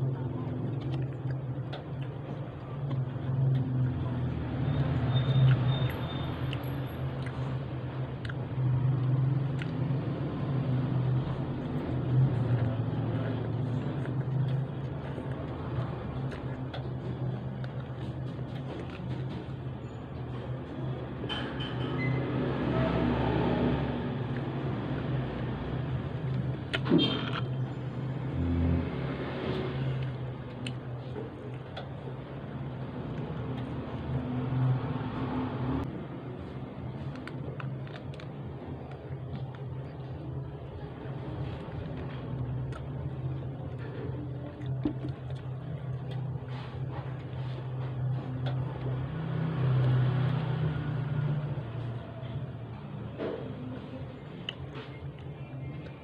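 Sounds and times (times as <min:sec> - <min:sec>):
chewing french fries: 0:00.0 - 0:20.8, 0:36.5 - 0:52.8
person chewing: 0:11.6 - 0:19.2.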